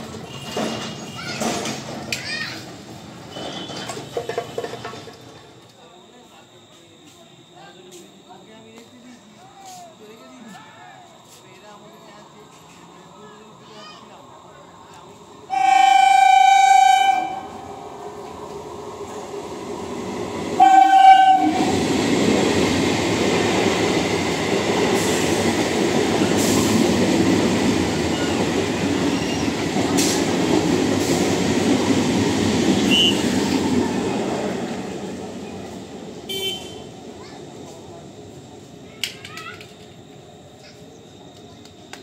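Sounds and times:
wheels clicking over rail joints: 0.0 - 2.8, 3.4 - 5.8
train coaches rumbling past: 0.0 - 7.1, 10.8 - 42.0
train horn blasts: 15.5 - 17.7, 20.6 - 21.8, 36.3 - 36.9.

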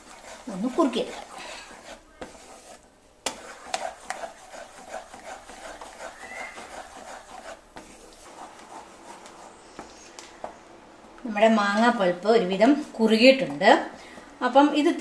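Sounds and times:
wooden spatula scraping a pan: 0.0 - 10.0, 12.6 - 13.9.

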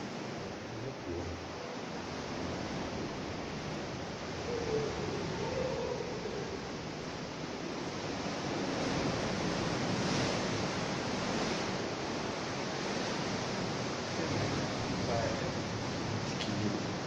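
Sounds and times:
ocean waves rushing in cave: 0.0 - 17.0.

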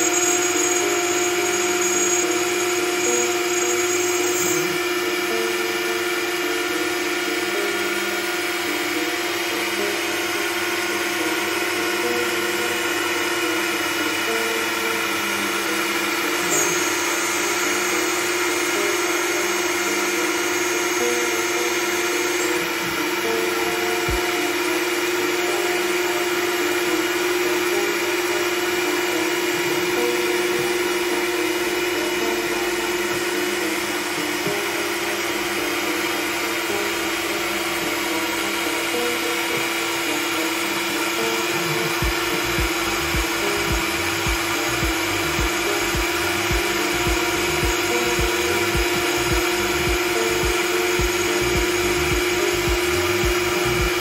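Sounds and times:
router spindle whining: 0.0 - 54.0
low pulsing: 42.0 - 54.0.

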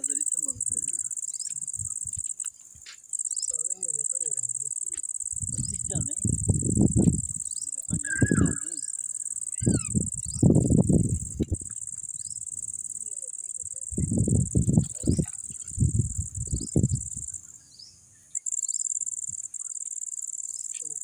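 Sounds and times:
crickets chirping: 0.0 - 21.0
faint bird chirps: 7.4 - 10.6.

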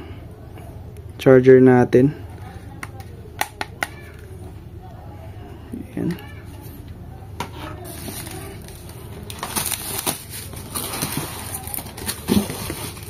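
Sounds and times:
plastic packaging rustling: 7.8 - 13.0.

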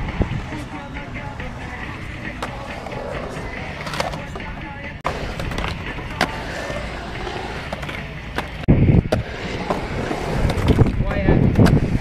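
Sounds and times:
skateboard wheels rolling on concrete: 0.0 - 12.0
skateboard clacks: 1.0 - 12.0.

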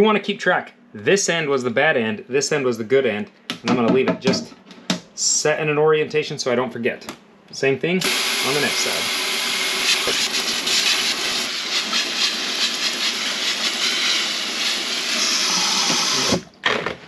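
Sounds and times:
faucet water spraying into sink: 9.8 - 16.4.

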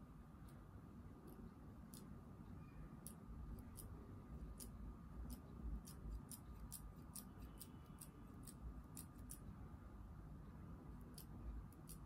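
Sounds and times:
scissors snipping fur: 1.3 - 2.1, 3.0 - 9.5, 11.0 - 12.0.

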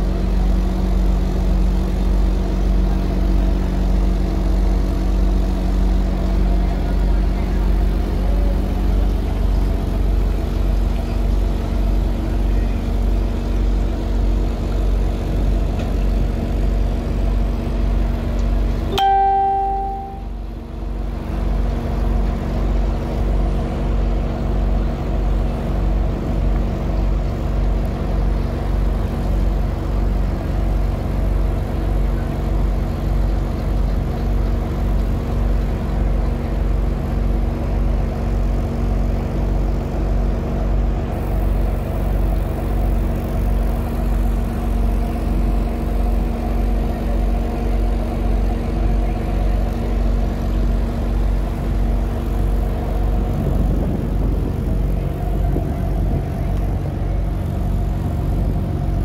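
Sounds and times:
boat engine humming: 0.0 - 59.0.

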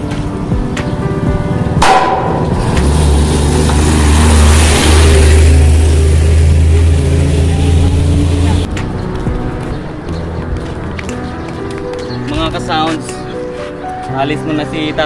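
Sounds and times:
truck driving past: 1.0 - 9.0.

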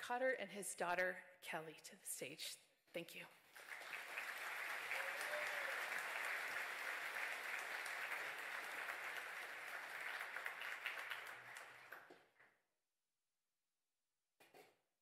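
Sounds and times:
crowd applauding: 3.5 - 12.4.

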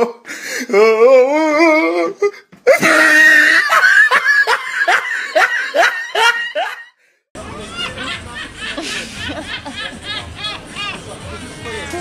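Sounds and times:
sobbing wail: 0.0 - 4.5.

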